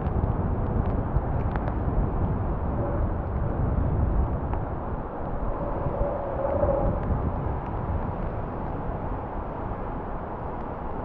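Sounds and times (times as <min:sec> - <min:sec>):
wind buffeting microphone: 0:00.0 - 0:11.0
distant turboprop engines: 0:01.7 - 0:09.7.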